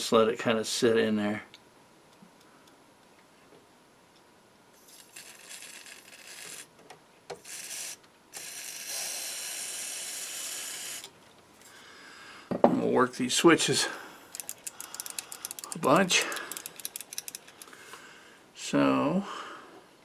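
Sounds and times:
small clicks: 14.3 - 17.8.

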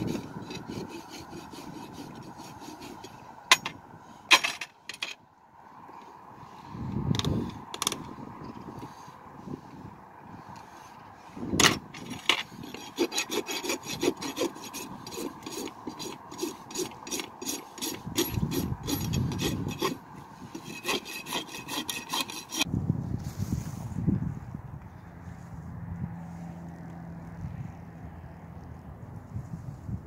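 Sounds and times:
rasp filing a hoof: 0.0 - 4.6, 10.4 - 22.7.

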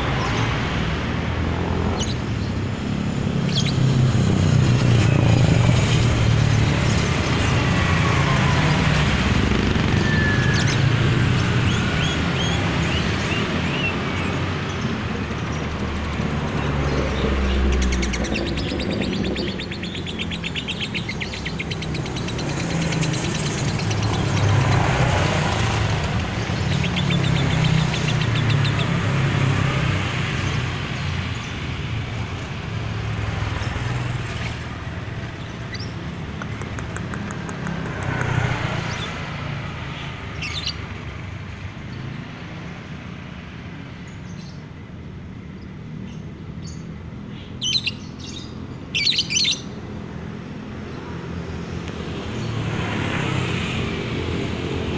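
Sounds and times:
motorbikes and traffic rumbling: 0.0 - 54.9
bird chirping in trills: 9.7 - 24.9, 39.9 - 40.9, 45.6 - 49.8.

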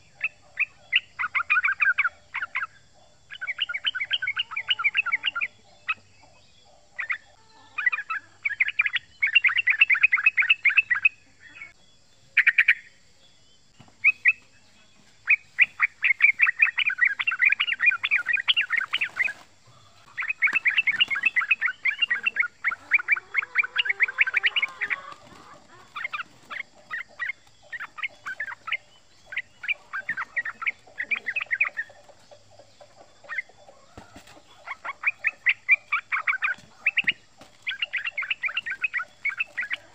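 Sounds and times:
bird rapid rolling chatter: 13.9 - 39.9.

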